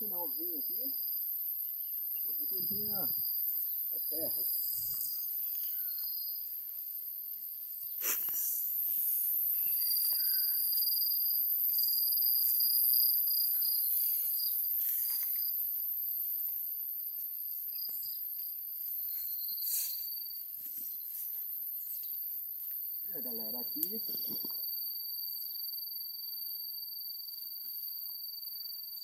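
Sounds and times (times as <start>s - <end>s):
high-pitched insect chorus: 0.0s - 29.0s
tall grass brushing against legs: 4.4s - 15.6s.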